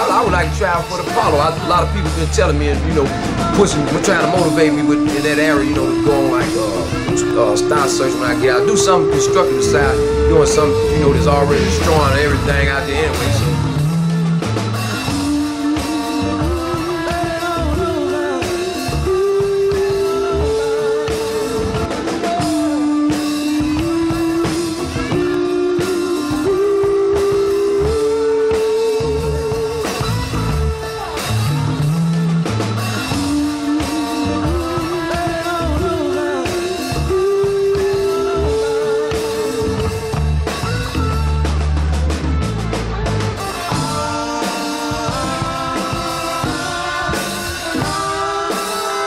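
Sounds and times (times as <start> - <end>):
drums: 0.0 - 49.0
guitar: 0.0 - 49.0
rock song with singing: 0.0 - 49.0.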